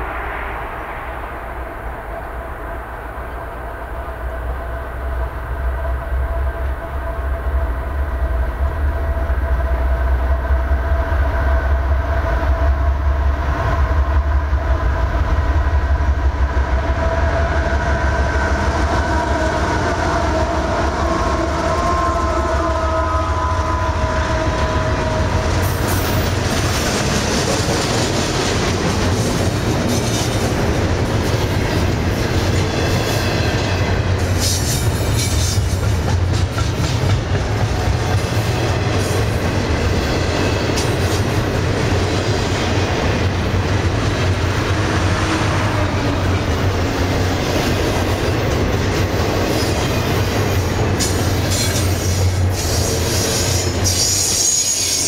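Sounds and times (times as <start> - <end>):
train horn: 17.1 - 26.3, 51.5 - 55.0
train wheels clicking on rail joints: 17.4 - 55.0.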